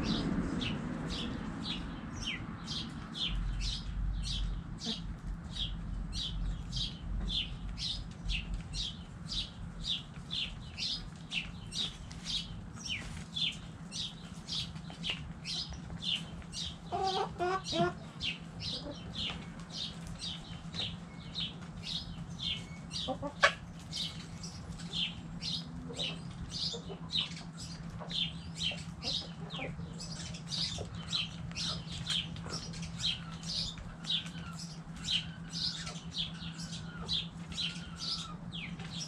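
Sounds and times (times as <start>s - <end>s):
small bird chirping: 0.0s - 39.0s
hen clucking: 14.3s - 39.0s.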